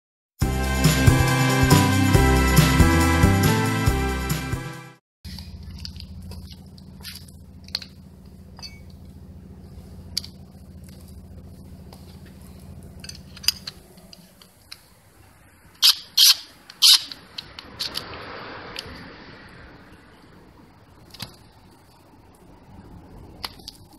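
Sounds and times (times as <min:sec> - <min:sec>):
steady low hum: 0:05.3 - 0:15.8
metallic clicks and clinks: 0:13.0 - 0:14.8.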